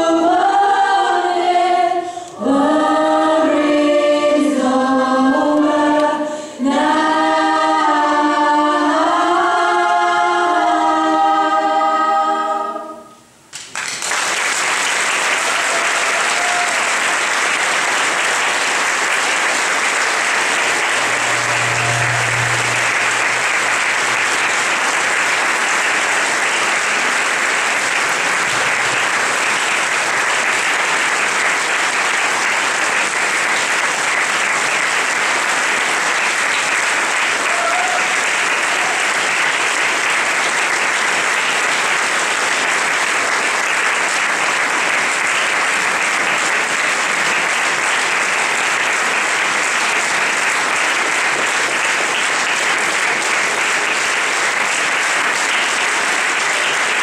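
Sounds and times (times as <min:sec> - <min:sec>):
audience applauding: 0:13.5 - 0:57.0.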